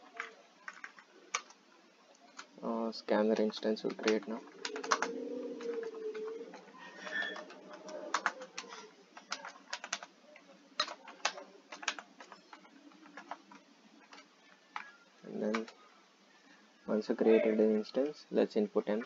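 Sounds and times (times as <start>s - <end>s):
keyboard typing clicks: 3.8s - 15.8s.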